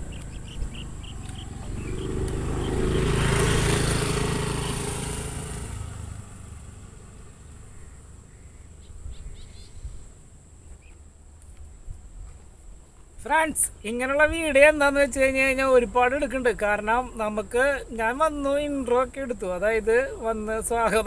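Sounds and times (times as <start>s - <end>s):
small bird chirps: 0.0s - 3.2s, 7.2s - 11.0s
vehicle engine passing by: 0.0s - 10.0s.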